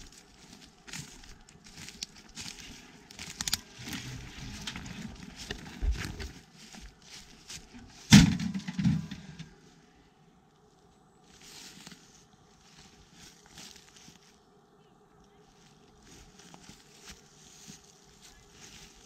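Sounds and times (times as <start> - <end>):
twigs cracking underfoot: 0.0 - 8.4, 11.2 - 14.4, 15.2 - 19.0.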